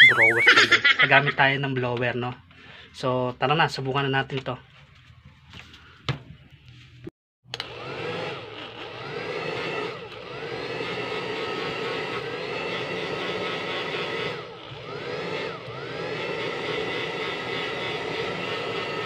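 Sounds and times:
electric blower running: 7.5s - 19.0s.

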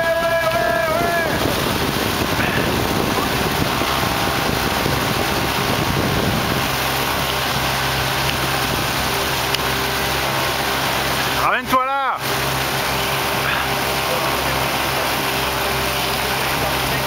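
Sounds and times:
wind buffeting microphone: 0.0s - 11.4s
boat engine running: 0.0s - 17.0s
rushing water: 0.0s - 17.0s.

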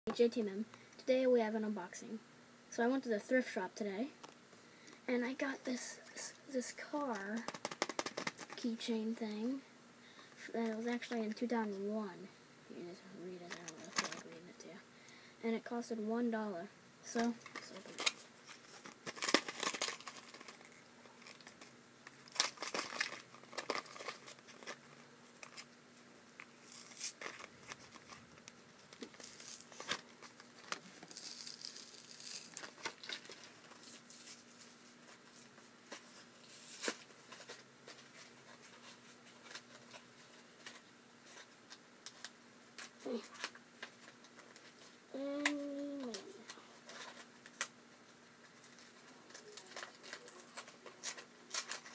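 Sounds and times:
blister pack crinkling and tearing: 17.3s - 25.7s, 26.4s - 38.0s, 48.5s - 51.9s.

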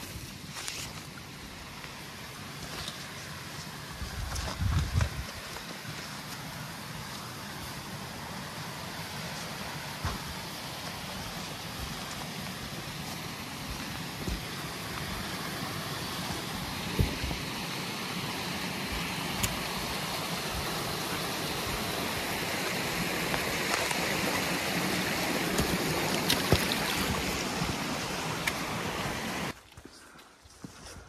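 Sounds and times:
running water rushing: 0.0s - 29.6s.

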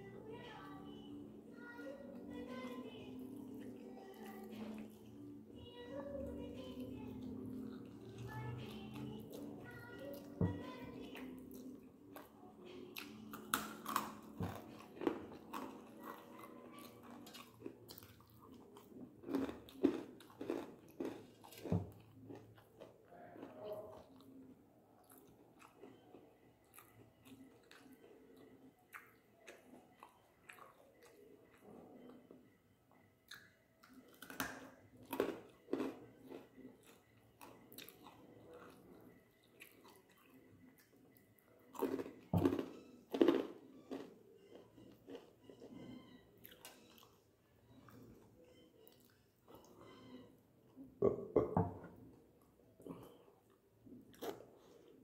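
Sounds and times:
person chewing food: 0.4s - 50.9s, 51.6s - 55.0s.

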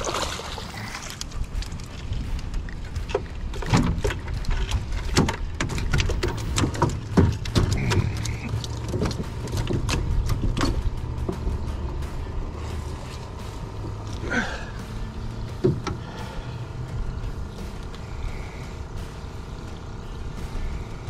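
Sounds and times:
steady low rumble: 0.0s - 21.0s
fish and tackle knocking in boat: 2.4s - 11.8s.

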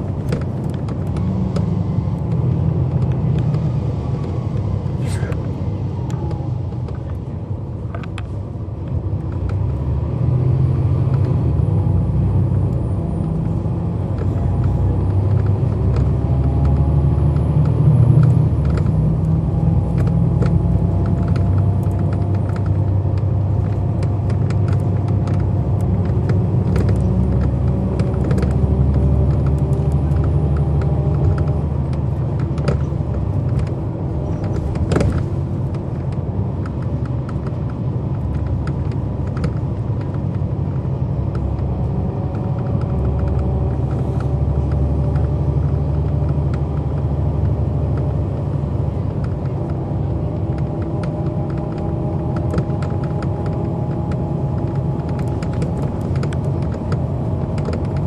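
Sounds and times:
bus body rattles and clicks: 0.0s - 58.0s
bus diesel engine accelerating: 0.0s - 58.0s.

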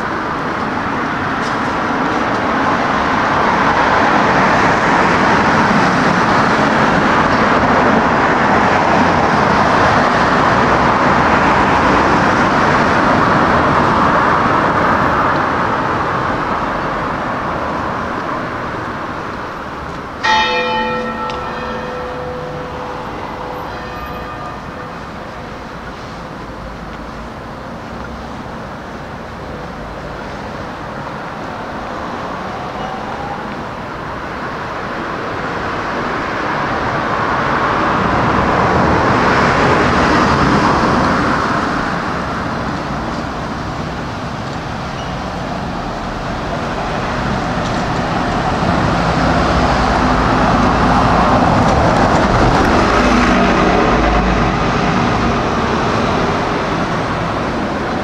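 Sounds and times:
cars passing: 0.0s - 58.0s.

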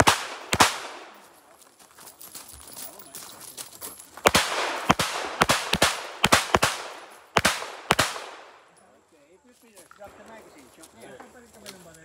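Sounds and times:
pistol shots with echo: 0.0s - 1.3s, 4.2s - 8.7s.

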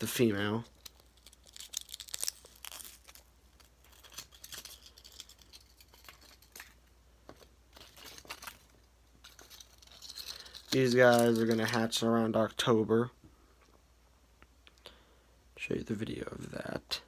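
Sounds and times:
handling clicks and rustles: 3.6s - 12.0s.

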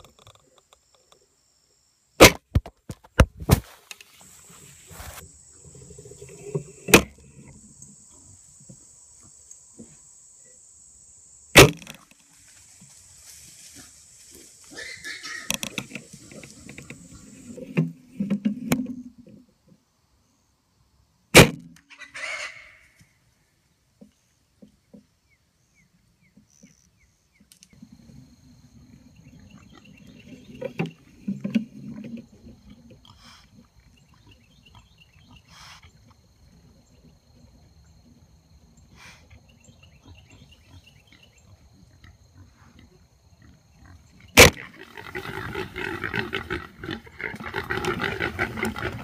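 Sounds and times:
high buzz of insects: 3.5s - 17.6s
hogs grunting: 14.7s - 17.7s, 38.9s - 49.0s
sharp loud cracks: 44.4s - 44.7s.

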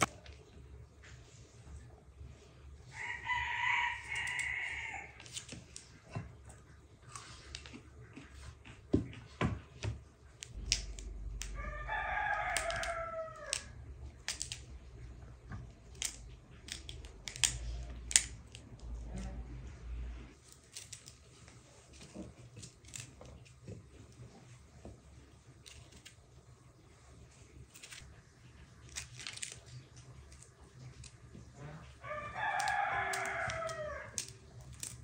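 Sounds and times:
rooster crowing: 2.9s - 5.2s, 11.4s - 13.8s, 31.7s - 34.3s.

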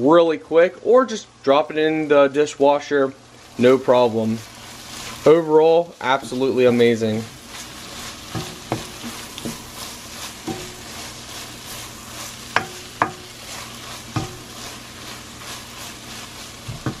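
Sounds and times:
eggs sizzling in a frying pan: 1.0s - 17.0s
wooden spoon knocking and scraping pan: 7.3s - 17.0s.

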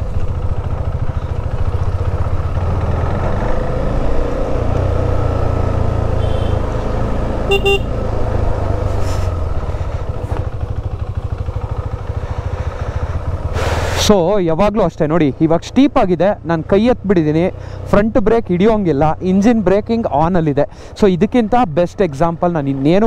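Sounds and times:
motorcycle engine running: 0.0s - 14.0s
vehicle horn toot: 6.2s - 6.7s, 7.5s - 8.0s.

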